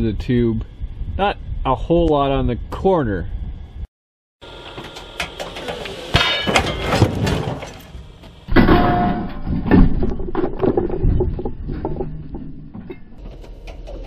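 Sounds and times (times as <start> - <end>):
metal clanking and rattling: 4.9 - 14.0
truck impact on boulder: 5.3 - 13.2.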